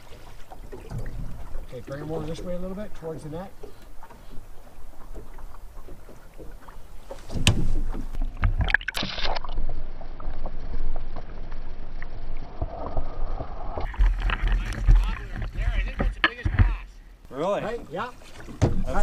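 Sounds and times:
muffled underwater sound: 12.5 - 17.0.

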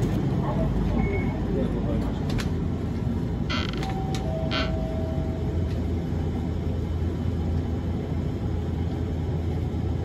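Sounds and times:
tram cabin hum: 0.0 - 10.0
faint held tone: 3.9 - 5.6.

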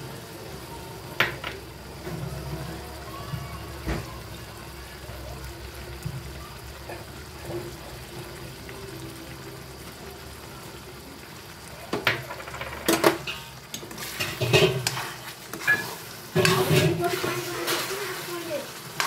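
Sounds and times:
curry simmering: 0.0 - 19.0
water poured into hot pan: 1.1 - 19.0
metal spoon scraping pan: 13.2 - 17.9.

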